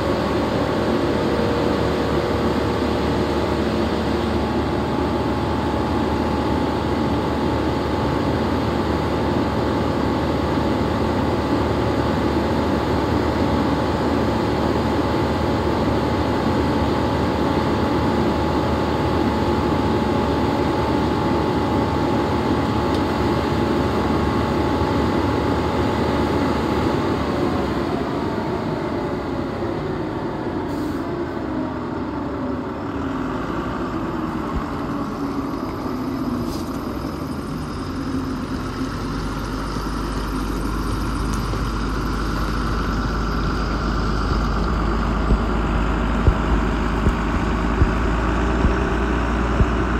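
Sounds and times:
truck machinery humming: 0.0 - 49.9
deep rumble: 40.1 - 49.9.

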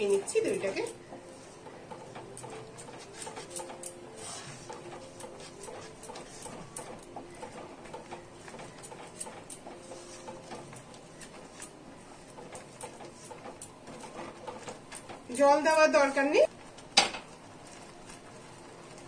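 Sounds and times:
spatula scraping a pan: 0.5 - 15.1.

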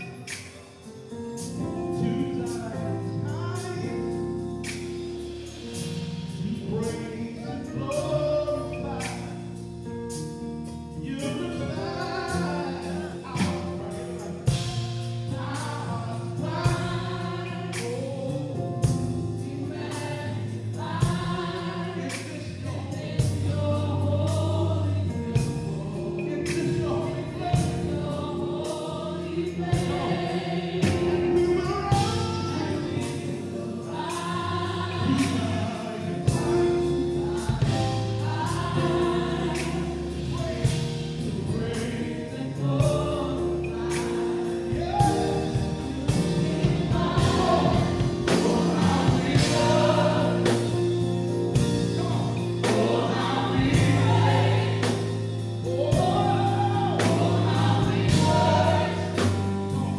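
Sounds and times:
choir singing: 0.0 - 3.8, 11.2 - 59.9
guitar: 0.0 - 59.9
keyboard: 0.0 - 59.9
steady driving beat: 42.6 - 59.9.

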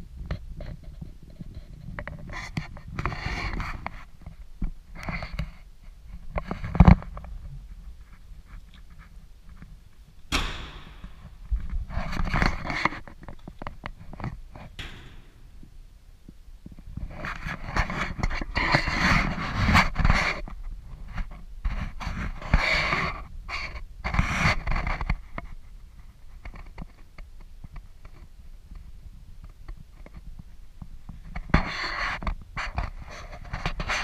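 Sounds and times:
car door slamming: 10.3 - 11.4.

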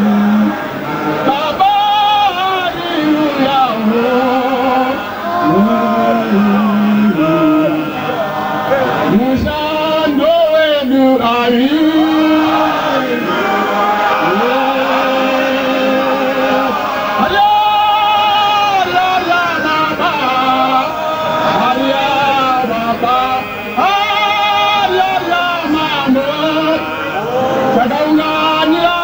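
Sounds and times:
voices singing a church hymn: 0.0 - 29.0.

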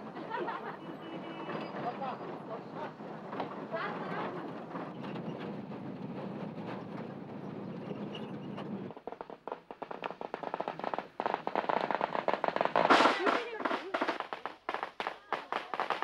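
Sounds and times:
firecrackers crackling: 5.8 - 16.0.

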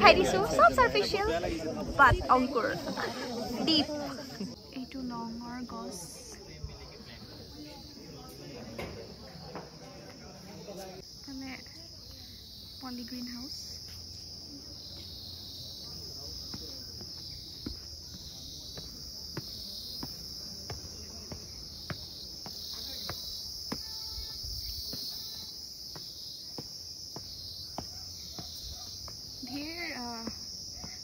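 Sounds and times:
insects chirring: 0.0 - 31.0
footsteps on paved path: 13.3 - 31.0.

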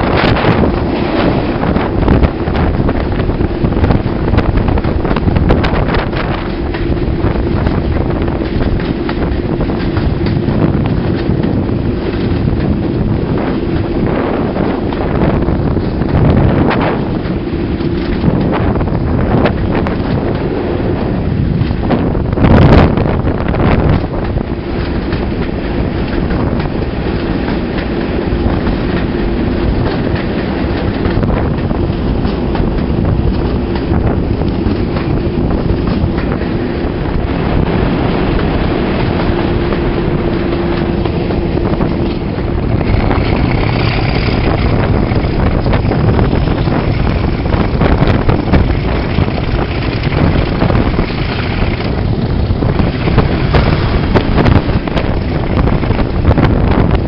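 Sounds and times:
diesel locomotive engine running: 0.0 - 57.0
train wheels on rails: 0.0 - 57.0
wind noise: 0.0 - 57.0.

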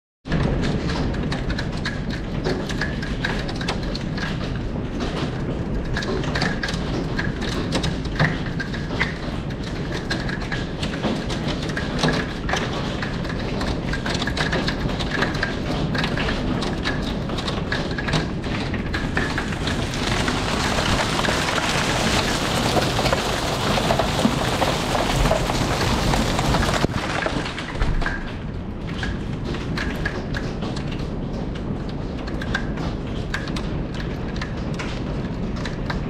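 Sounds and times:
hail falling outside: 0.5 - 36.0
hail ticking on window glass: 1.3 - 28.2.

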